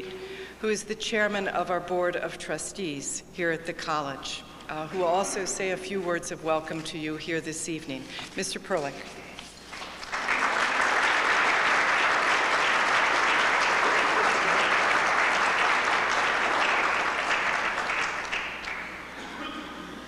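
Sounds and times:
audience applauding: 9.6 - 19.1.

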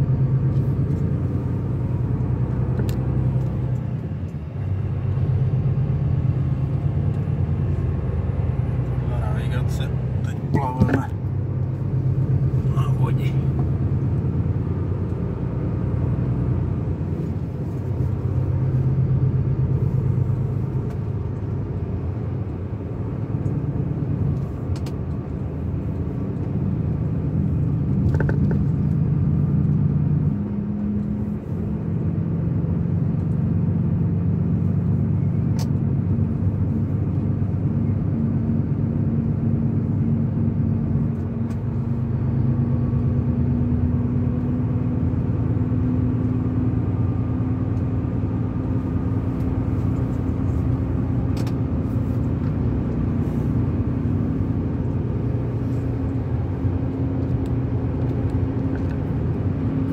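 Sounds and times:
car engine hum: 0.0 - 59.9
road noise inside car: 0.0 - 59.9.

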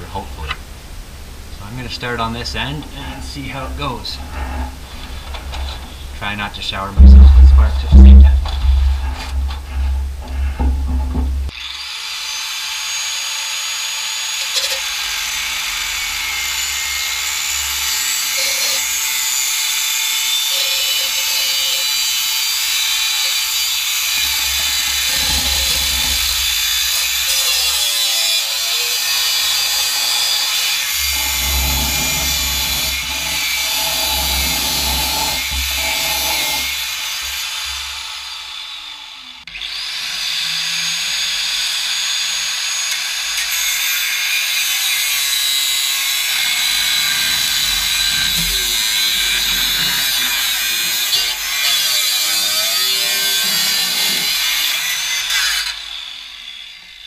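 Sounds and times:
angle grinder cutting metal pipe: 2.6 - 6.4, 11.5 - 57.0.

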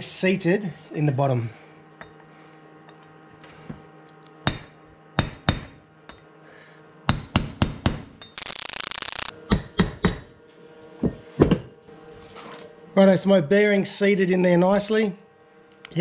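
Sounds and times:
harsh noise: 8.4 - 9.3.

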